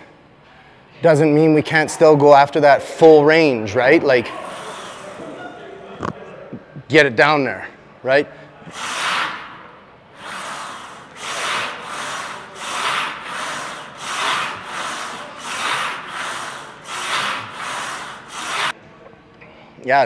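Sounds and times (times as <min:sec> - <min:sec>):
man breathing hard: 0:04.3 - 0:05.4, 0:08.3 - 0:18.8.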